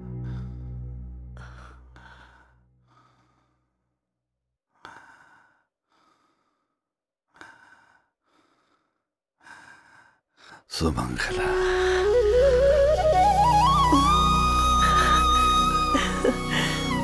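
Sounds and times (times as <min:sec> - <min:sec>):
person breathing: 0:00.0 - 0:03.8, 0:04.8 - 0:10.7, 0:14.0 - 0:17.0.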